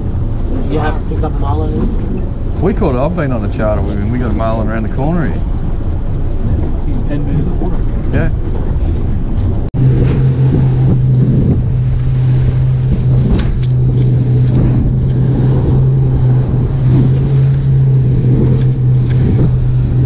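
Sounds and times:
motorboat engine drone: 0.0 - 20.0
water spray rushing: 10.2 - 20.0.

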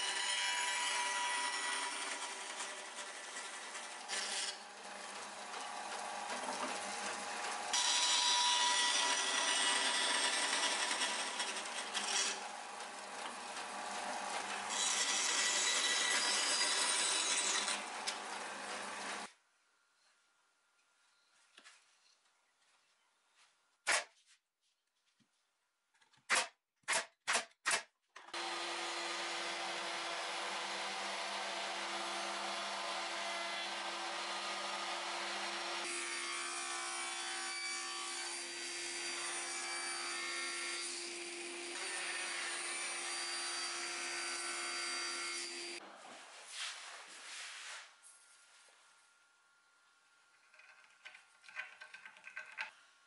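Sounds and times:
router cutting wood: 0.0 - 19.3, 28.3 - 45.8
wooden pieces knocking: 50.5 - 52.8.

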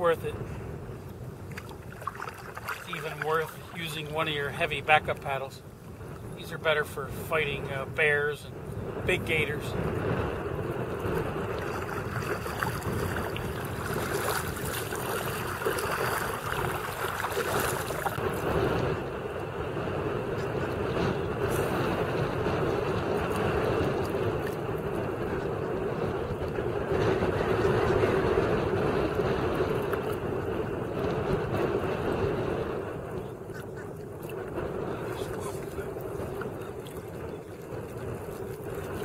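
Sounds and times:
waves lapping against hull: 0.0 - 39.0
wind noise on microphone: 0.0 - 39.0.

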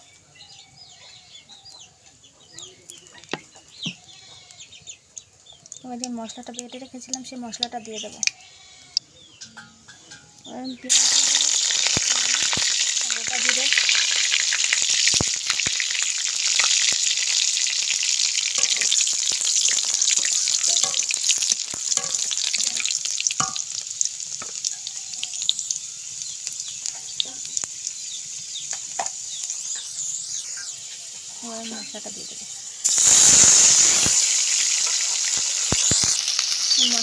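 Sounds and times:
paste sizzling in hot oil: 5.6 - 9.0, 10.8 - 37.0.

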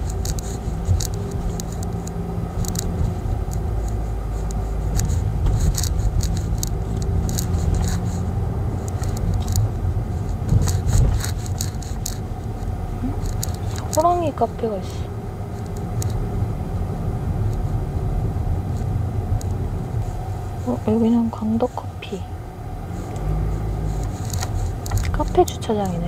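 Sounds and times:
light clicks and rattles: 0.0 - 16.3, 22.9 - 26.0
car engine and road noise: 0.0 - 26.0.

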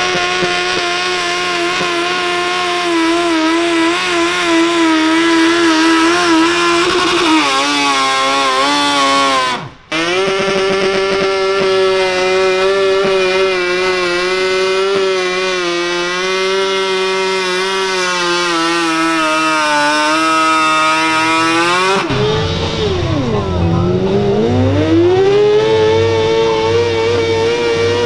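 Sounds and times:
tractor engine revving under load: 0.0 - 28.0
tractor engine bogging down: 21.2 - 27.8.

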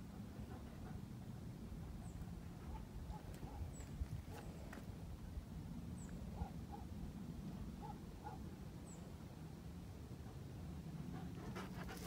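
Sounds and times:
dog panting: 11.1 - 12.0.

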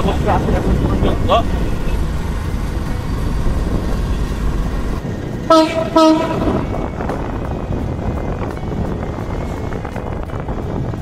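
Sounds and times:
steady low rumble: 0.0 - 11.0
locomotive horn blasts: 5.5 - 6.8.

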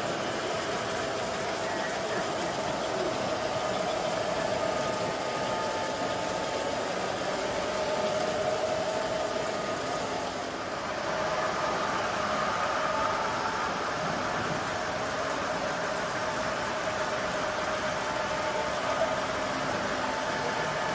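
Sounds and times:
model train motor whine: 0.0 - 20.9
room noise hiss: 0.0 - 20.9.

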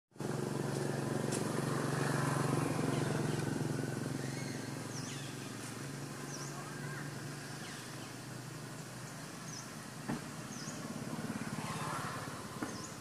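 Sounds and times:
motor engine humming: 0.2 - 13.0
bird chirps: 4.2 - 9.8, 10.4 - 10.9, 12.6 - 13.0.

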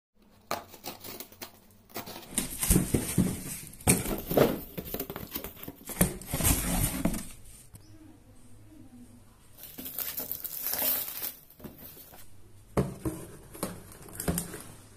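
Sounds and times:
cardboard flaps scraping and rustling: 1.9 - 7.5.

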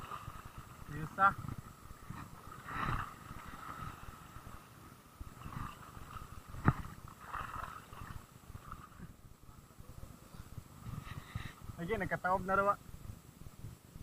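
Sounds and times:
water lapping over rocks: 0.0 - 9.2
wind rumble on microphone: 0.0 - 14.0.

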